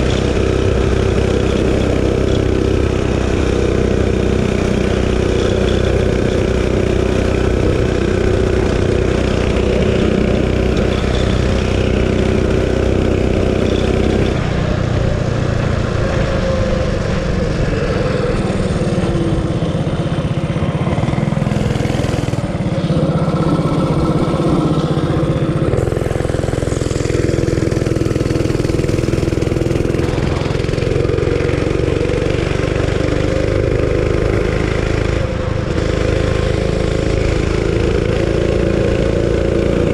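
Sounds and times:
mini bike engine revving: 0.0s - 39.9s.

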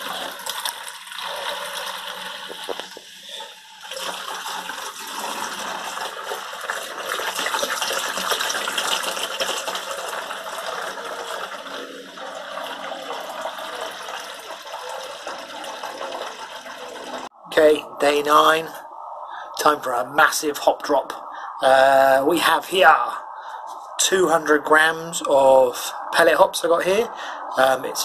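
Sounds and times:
liquid pouring into bucket: 0.0s - 17.3s.

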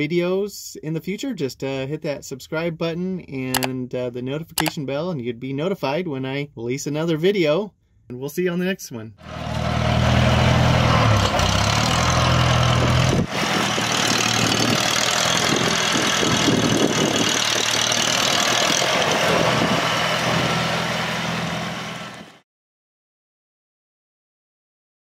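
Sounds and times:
tractor engine running: 9.2s - 22.3s.

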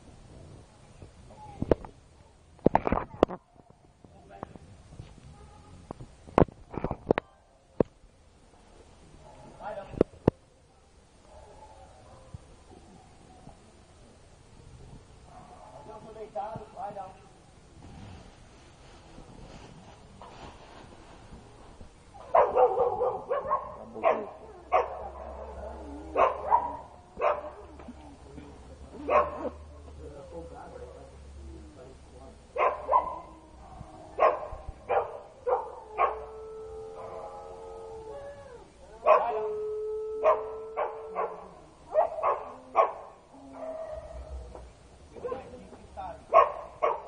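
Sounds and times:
dog barking: 11.2s - 12.4s, 22.3s - 25.6s, 26.2s - 27.6s, 29.1s - 29.5s, 32.6s - 36.3s, 39.1s - 39.4s, 40.2s - 44.2s, 46.3s - 47.0s.

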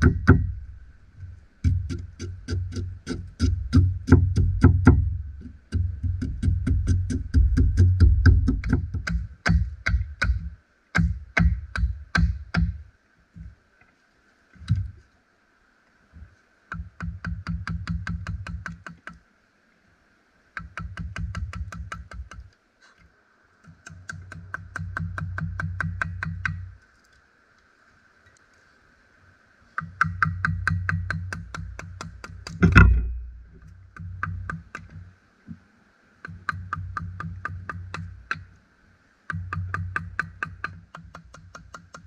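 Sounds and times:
mallet knocking on gouge: 0.0s - 0.6s, 1.6s - 12.7s, 29.8s - 33.3s.

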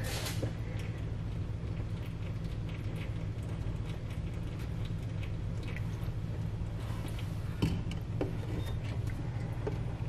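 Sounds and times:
oil dripping into pan: 0.4s - 6.7s.

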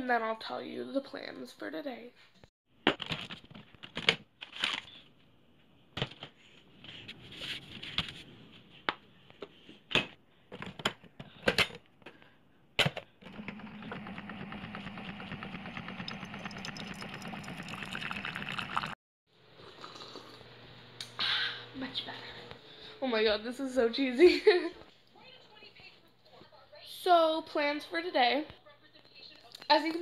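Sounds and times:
coffee maker pump humming: 13.2s - 23.0s.

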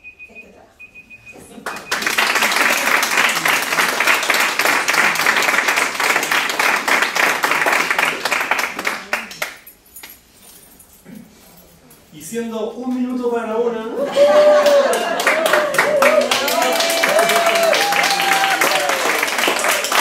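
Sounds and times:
audience applause: 1.6s - 9.5s, 14.0s - 20.0s.

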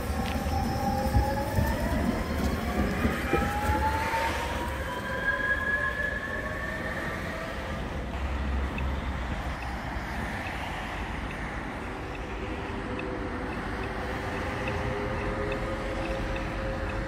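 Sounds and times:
tram running on track: 0.0s - 17.0s.

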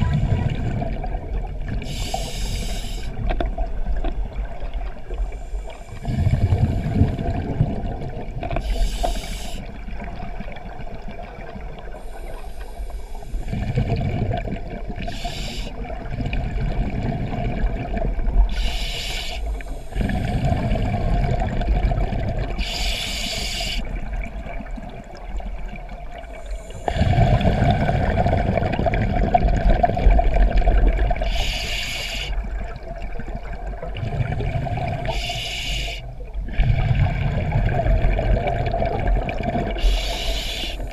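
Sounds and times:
gurgle of exhaled bubbles: 0.0s - 2.2s, 3.1s - 8.9s, 12.9s - 18.8s, 19.4s - 40.9s
diver inhaling through regulator: 1.8s - 3.2s, 8.6s - 9.7s, 12.0s - 14.2s, 15.0s - 15.8s, 18.5s - 20.8s, 22.6s - 23.9s, 26.3s - 27.9s, 31.2s - 32.5s, 34.3s - 37.2s, 39.7s - 40.9s.

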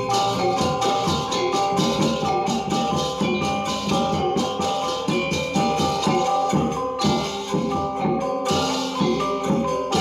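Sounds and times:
low struck beat: 0.0s - 10.0s
metallophones ringing: 0.0s - 10.0s.

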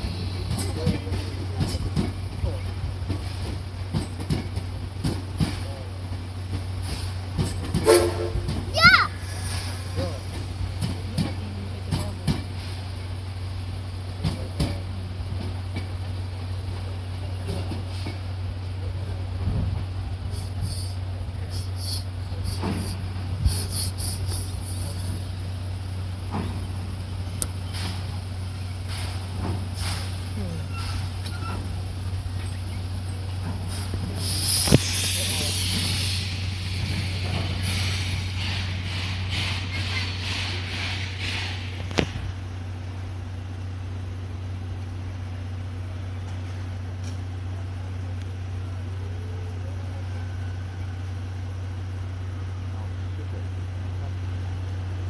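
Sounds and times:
steam locomotive puffing: 6.8s - 10.9s, 20.2s - 25.4s, 27.6s - 31.8s, 33.4s - 42.4s.

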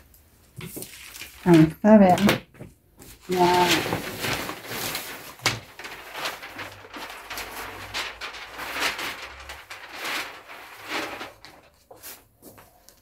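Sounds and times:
paper rustling: 0.0s - 13.0s.

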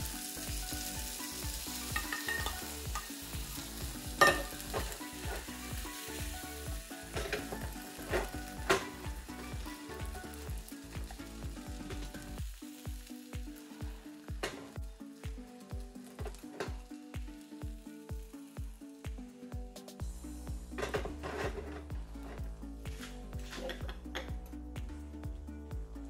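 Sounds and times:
food sizzling in a pan: 0.0s - 23.7s
background music with low beat: 0.0s - 26.0s
utensil clinking against pan: 2.0s - 3.1s, 4.2s - 4.8s.

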